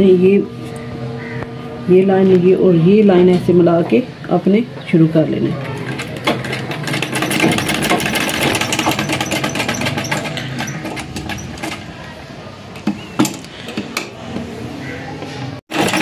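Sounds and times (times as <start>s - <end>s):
sewing machine stitching: 5.6s - 11.9s, 15.7s - 16.0s
sewing machine clicks: 5.8s - 11.9s, 15.7s - 16.0s.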